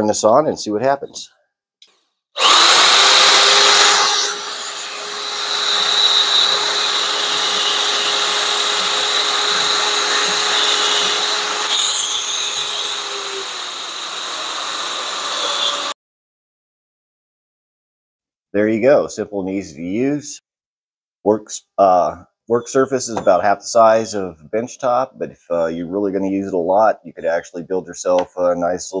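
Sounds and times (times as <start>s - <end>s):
sander sanding wooden block: 2.4s - 15.9s
spindle sander running: 2.4s - 15.9s.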